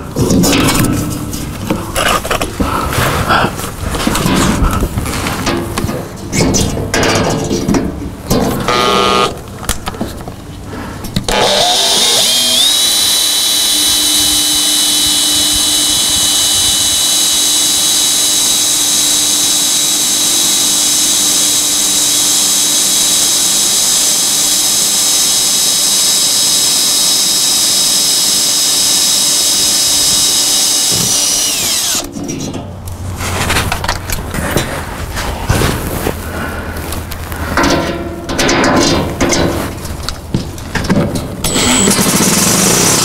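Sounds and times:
cordless drill boring through metal: 8.6 - 9.4, 11.3 - 32.2, 41.4 - 43.0.

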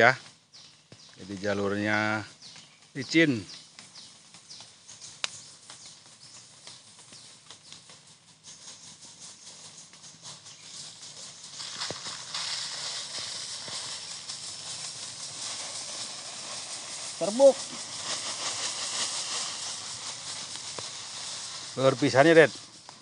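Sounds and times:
footsteps on mud: 9.3 - 21.9
rice husks pouring: 11.6 - 23.0.

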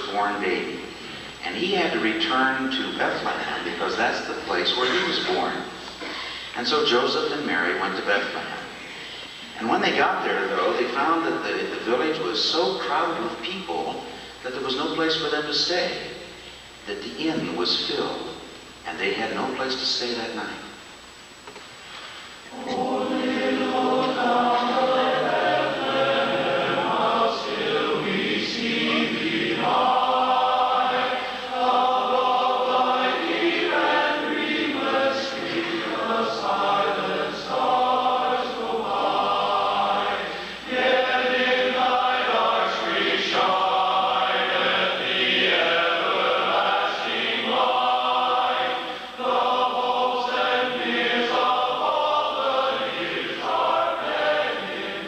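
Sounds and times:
men's chorus singing a cappella: 22.5 - 55.0.

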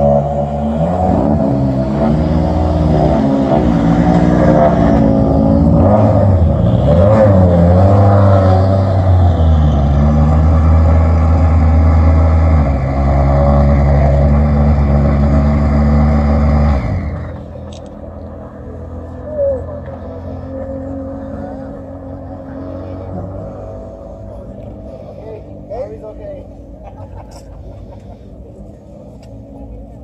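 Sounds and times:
rally car engine revving: 0.0 - 30.0.

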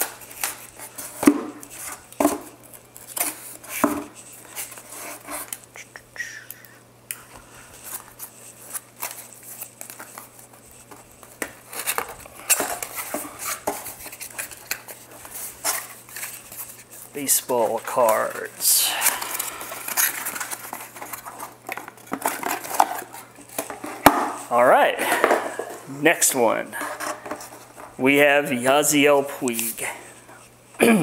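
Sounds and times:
cardboard rustling: 7.3 - 28.0.

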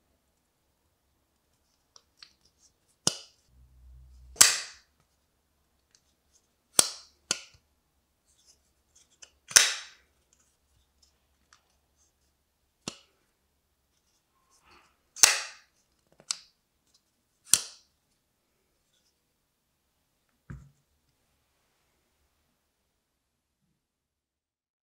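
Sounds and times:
folding knife blade snapping: 4.4 - 4.8, 17.5 - 17.8.

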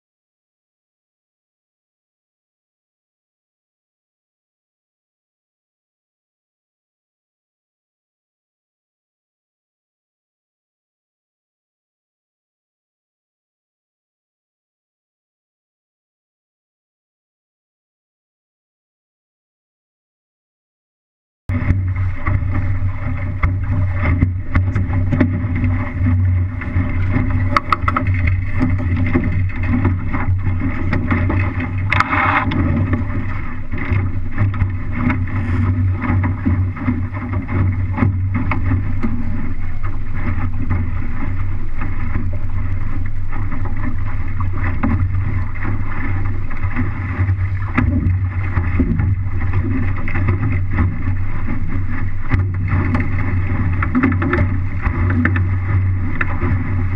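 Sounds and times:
water slapping against hull: 21.5 - 56.9
wind buffeting microphone: 21.5 - 56.9.

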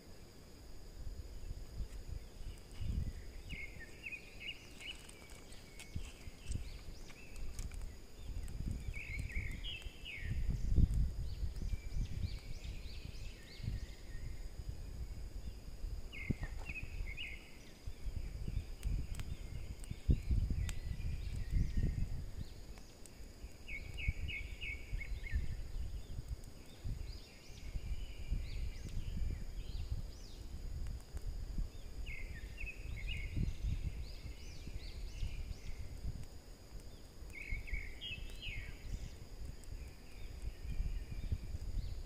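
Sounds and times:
high insect drone: 0.0 - 42.0
birds chirping: 1.8 - 14.4, 36.9 - 42.0.

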